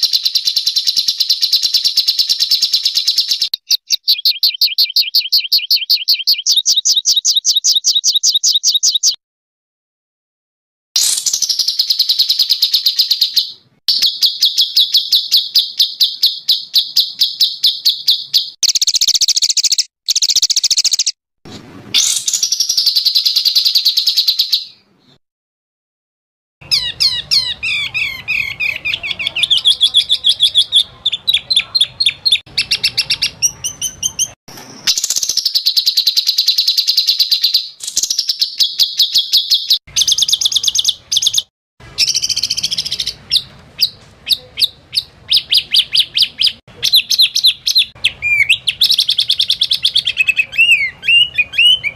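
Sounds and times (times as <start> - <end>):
songbird trills: 0.0 - 9.2, 11.0 - 21.2, 26.6 - 51.9.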